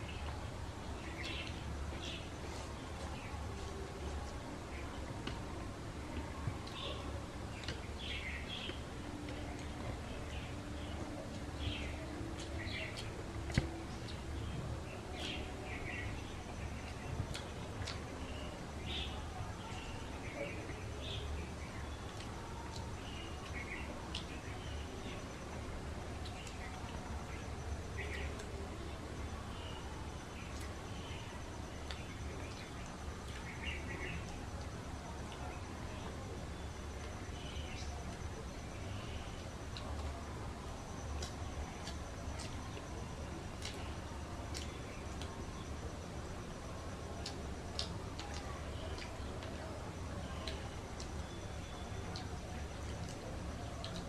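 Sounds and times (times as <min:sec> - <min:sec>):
birds chirping: 0:00.0 - 0:05.4, 0:06.0 - 0:54.0
low steady hum: 0:00.0 - 0:54.0
fingers clicking on food: 0:41.1 - 0:42.9, 0:53.8 - 0:54.0.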